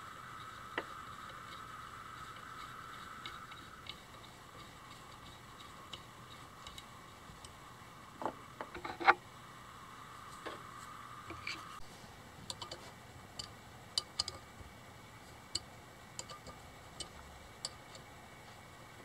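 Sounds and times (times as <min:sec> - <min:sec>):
faint steady hum: 0:00.0 - 0:19.0
screwdriver metallic ticks: 0:12.5 - 0:12.8, 0:13.4 - 0:14.5, 0:15.5 - 0:18.1.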